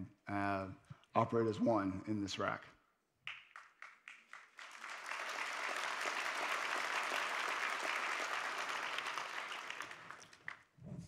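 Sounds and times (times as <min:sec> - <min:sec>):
audience applauding: 0:03.3 - 0:10.7.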